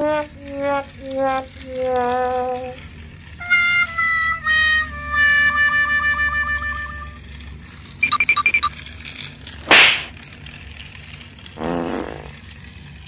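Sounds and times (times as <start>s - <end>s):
short high beeps: 8.0s - 8.7s.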